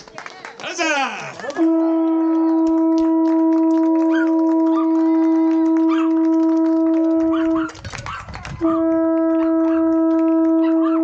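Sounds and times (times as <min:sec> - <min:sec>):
conch shell horn note: 0:01.6 - 0:07.6, 0:08.6 - 0:11.0.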